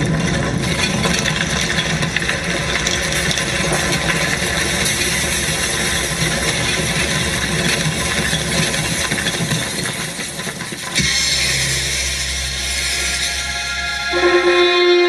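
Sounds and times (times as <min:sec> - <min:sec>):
dense rattling noise: 0:00.0 - 0:15.0
steady low drone: 0:11.0 - 0:15.0.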